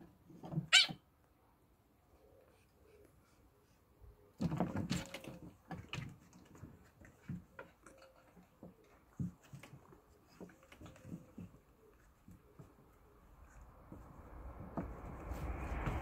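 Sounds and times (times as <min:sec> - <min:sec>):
kittens' paws tapping on wooden decking: 0:04.4 - 0:13.0.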